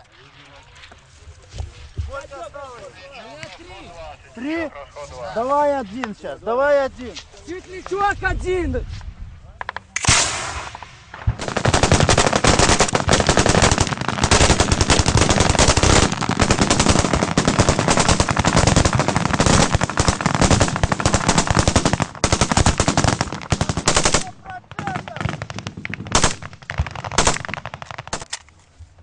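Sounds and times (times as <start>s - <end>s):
automatic gunfire bursts: 11.4s - 24.3s, 25.2s - 28.3s.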